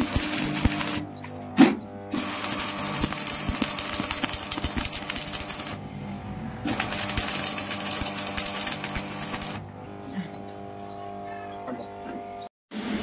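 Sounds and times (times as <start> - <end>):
welding arc crackling: 0.0 - 9.8.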